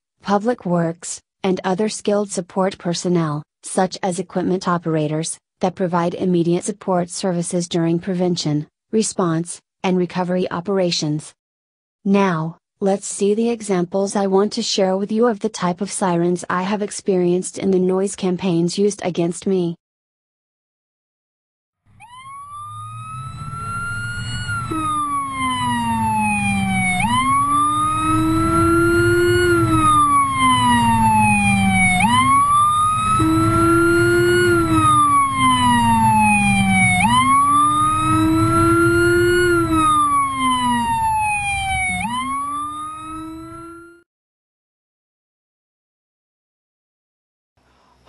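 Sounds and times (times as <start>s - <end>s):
deep low siren tone: 21.9s - 44.1s
emergency siren wailing: 21.9s - 44.1s.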